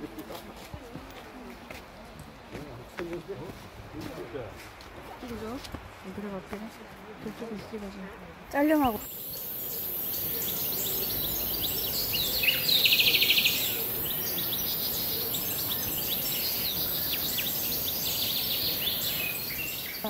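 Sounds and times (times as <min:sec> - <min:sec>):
songbirds chirping: 0:00.0 - 0:20.0
high-pitched hiss: 0:08.9 - 0:20.0
bird trill: 0:09.0 - 0:20.0.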